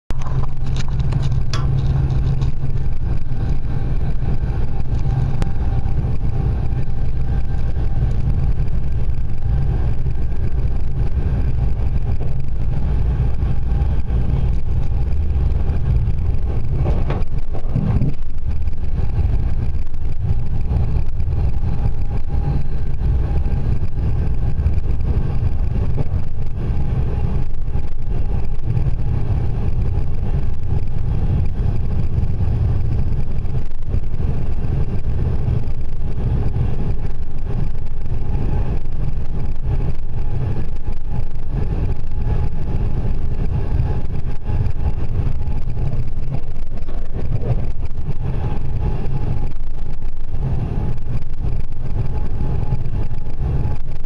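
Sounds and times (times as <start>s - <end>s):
train rumbling at speed: 0.0s - 54.0s.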